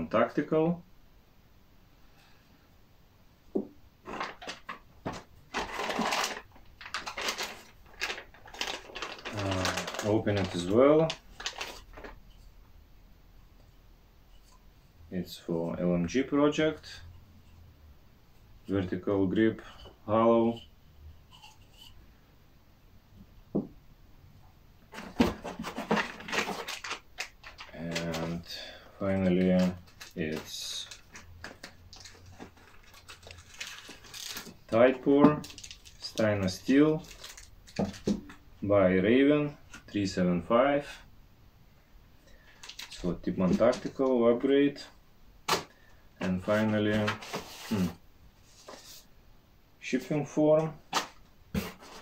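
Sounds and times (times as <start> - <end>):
packaging rustling: 4.0 - 12.5, 24.9 - 38.4, 42.5 - 44.1, 46.4 - 49.1
item knocking on table: 23.5 - 23.8.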